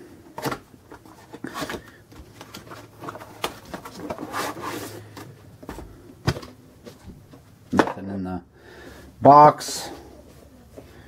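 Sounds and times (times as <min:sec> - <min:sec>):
rustling slide: 0:04.1 - 0:05.1.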